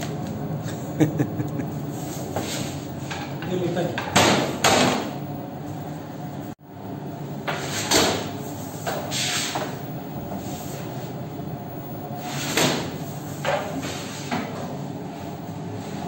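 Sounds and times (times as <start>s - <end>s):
oven machinery hum: 0.0s - 16.0s.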